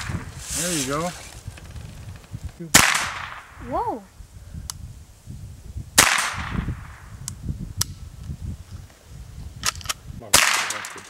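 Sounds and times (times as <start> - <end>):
rifle shot: 2.7 - 3.6, 6.0 - 7.1, 10.3 - 11.0.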